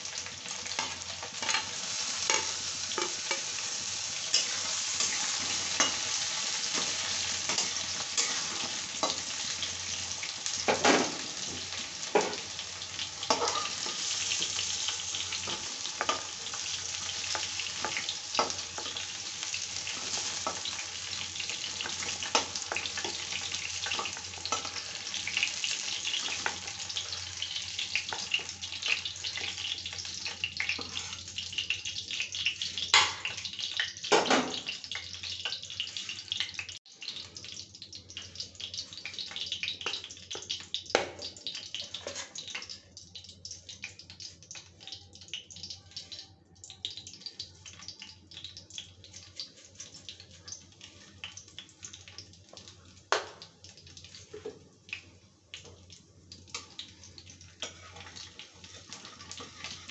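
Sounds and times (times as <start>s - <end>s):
oil sizzling in a pan: 0.0s - 59.9s
metal spoon scraping a pan: 0.7s - 9.5s, 13.2s - 27.5s, 30.2s - 31.4s, 41.8s - 42.4s, 57.6s - 59.9s.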